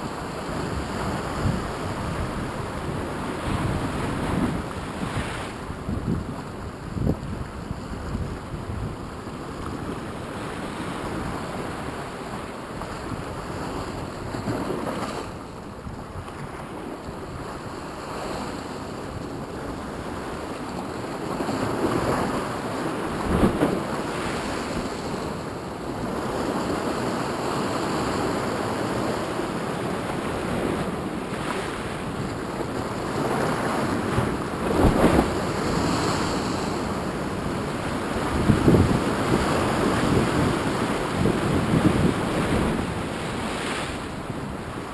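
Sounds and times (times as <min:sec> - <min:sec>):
wind on microphone: 0:00.0 - 0:44.9
surf breaking over rocks: 0:21.7 - 0:25.3, 0:30.0 - 0:44.9.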